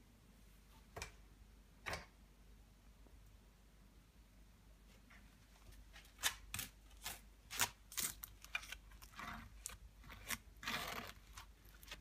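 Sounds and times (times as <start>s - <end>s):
metal spoon scraping wafer: 7.0s - 12.0s.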